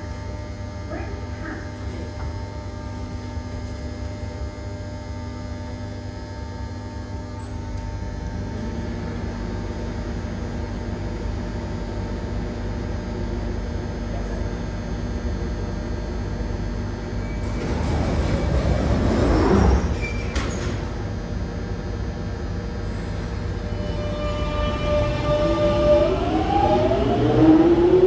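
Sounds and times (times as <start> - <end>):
train low hum: 0.0 - 28.0
train doors closing: 17.2 - 21.2, 22.8 - 28.0.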